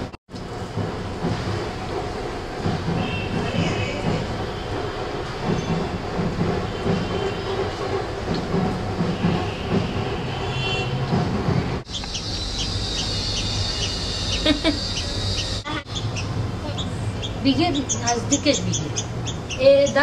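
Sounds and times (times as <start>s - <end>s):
bird chick chirping: 11.9s - 20.0s.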